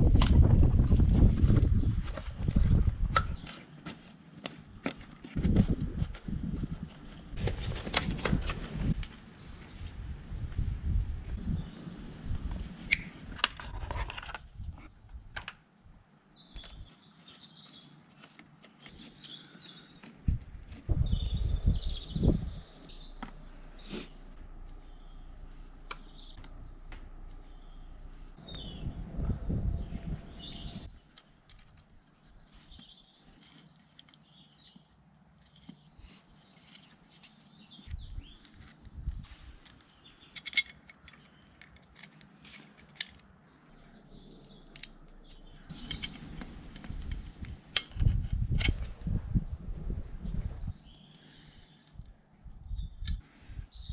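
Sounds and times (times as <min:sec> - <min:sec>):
low rumbling: 0:00.0 - 0:03.4, 0:05.4 - 0:13.5, 0:20.2 - 0:31.0, 0:43.6 - 0:50.9
clicks and rustles of handling parts: 0:12.9 - 0:15.7, 0:31.1 - 0:43.4, 0:44.3 - 0:49.0
small birds chirping: 0:14.8 - 0:53.9.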